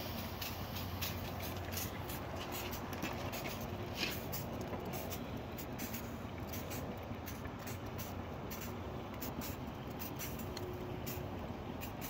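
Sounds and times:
steady hiss and low hum: 0.0s - 12.0s.

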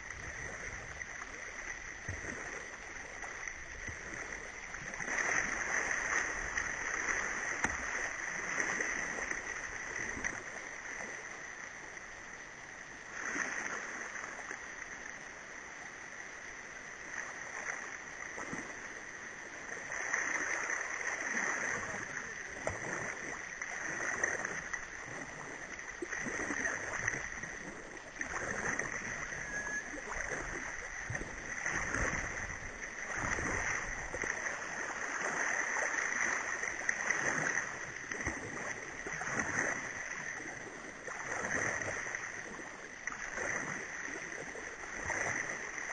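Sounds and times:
water splashing against hull: 0.0s - 15.6s, 16.9s - 45.9s
whitewater rapids rushing: 28.2s - 37.7s.

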